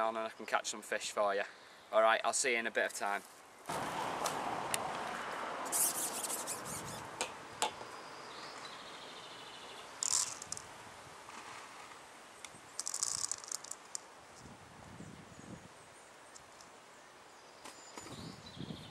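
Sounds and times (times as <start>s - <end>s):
faint bird chirp: 5.7s - 7.1s, 15.0s - 18.9s
fishing tackle clicking and rattling: 10.0s - 10.7s, 12.8s - 14.1s.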